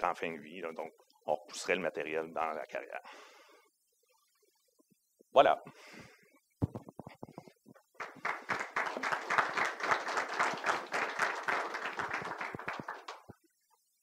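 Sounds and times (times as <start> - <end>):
audience applauding: 8.0 - 13.3.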